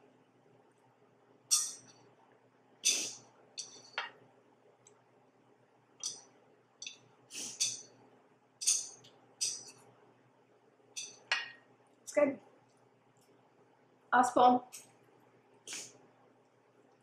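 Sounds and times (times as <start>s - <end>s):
chopsticks scraping frying pan: 7.3s - 7.8s.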